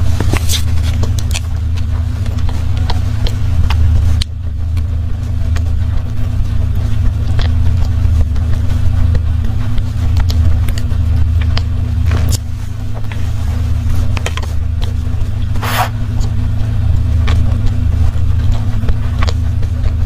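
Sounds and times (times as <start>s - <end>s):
steady low hum: 0.0s - 20.0s
chewing mouth clicks: 0.3s - 13.3s, 14.0s - 16.4s, 17.0s - 20.0s.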